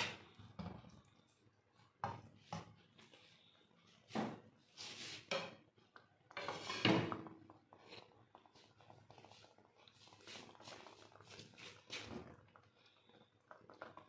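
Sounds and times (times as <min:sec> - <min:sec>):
rustling and scraping: 0:02.4 - 0:05.6.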